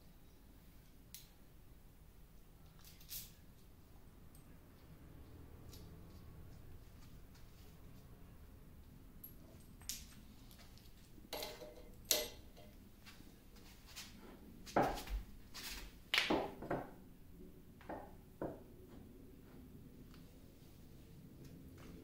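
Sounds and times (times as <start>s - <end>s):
metal clinks and knocks: 9.2s - 12.8s.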